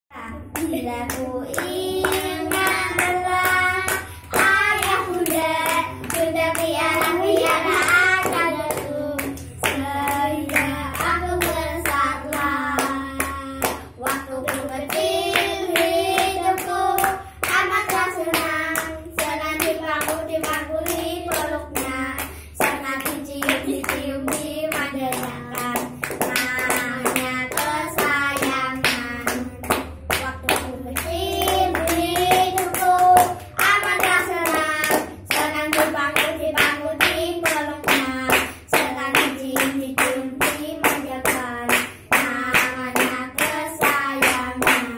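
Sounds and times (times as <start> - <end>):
children singing: 0.2 - 29.7
children clapping hands: 0.4 - 44.9.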